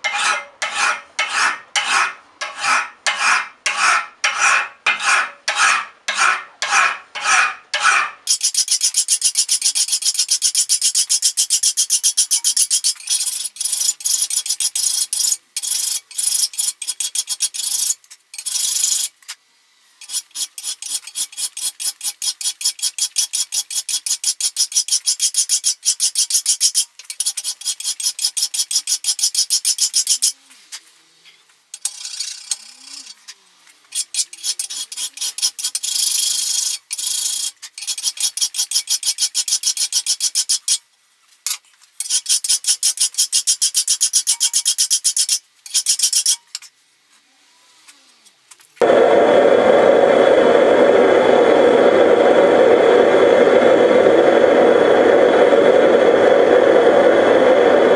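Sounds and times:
file rasping on steel blade: 0:00.0 - 0:19.1, 0:20.0 - 0:30.3, 0:33.9 - 0:40.8, 0:42.0 - 0:46.7.

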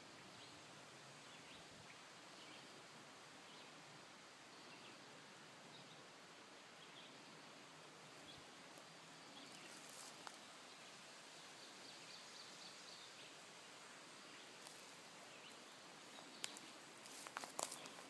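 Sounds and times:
faint steady hiss: 0:00.0 - 0:18.0
footsteps crunching on dirt path: 0:16.1 - 0:18.0.

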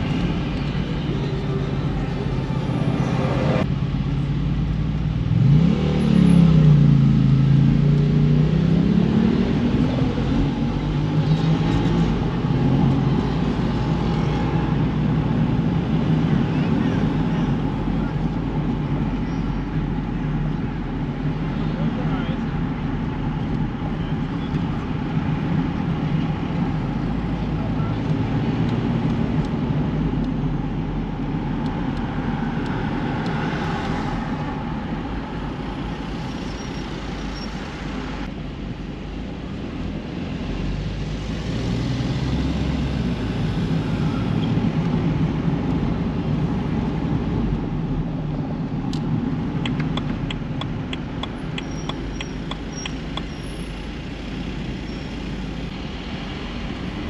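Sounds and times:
car engine and road rumble: 0:00.0 - 0:57.0
sharp evenly spaced ticks: 0:49.6 - 0:53.3.

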